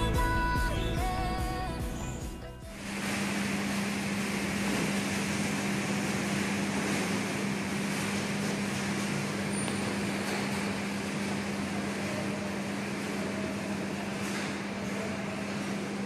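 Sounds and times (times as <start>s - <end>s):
music: 0.0s - 2.9s
low mechanical drone: 0.0s - 16.0s.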